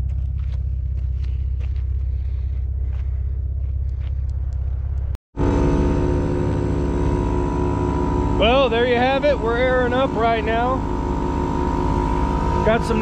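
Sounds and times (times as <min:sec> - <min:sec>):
vehicle engine idling: 0:00.0 - 0:13.0
air compressor running: 0:05.4 - 0:13.0.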